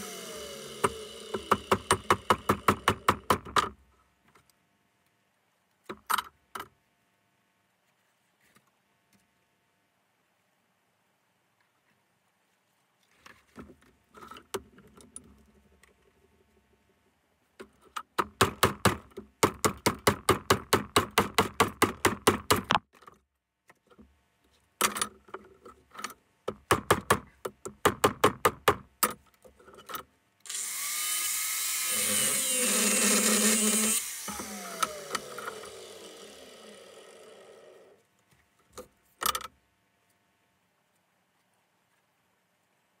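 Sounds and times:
angle grinder cutting metal: 0.0 - 2.0, 30.5 - 37.9.

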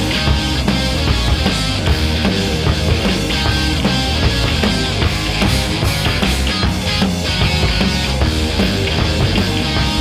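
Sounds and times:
drum kit beat with cymbals: 0.0 - 10.0
electric guitar: 0.0 - 10.0
rock band playing: 0.0 - 10.0.

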